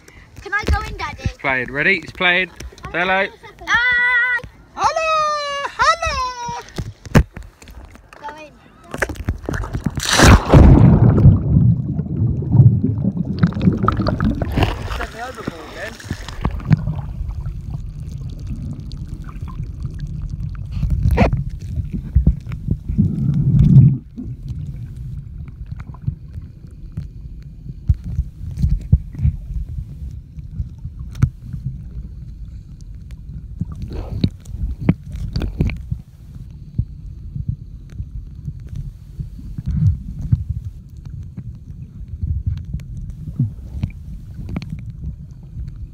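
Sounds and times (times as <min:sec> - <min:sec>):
underwater knocks and clicks: 0:08.9 - 0:10.0, 0:10.7 - 0:45.9
muffled underwater rumble: 0:08.9 - 0:45.9
water surge: 0:09.4 - 0:26.1.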